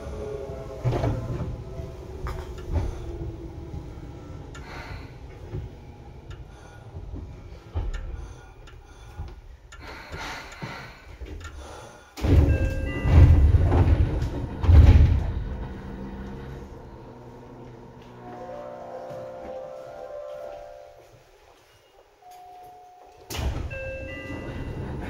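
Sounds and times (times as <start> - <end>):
loud low rumble with thumps: 0.0 - 8.2, 12.2 - 18.2
brief chime: 21.7 - 25.0.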